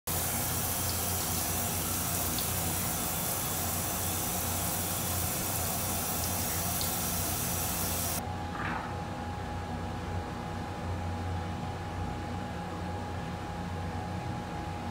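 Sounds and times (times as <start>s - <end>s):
water hissing from shower hose: 0.0s - 8.2s.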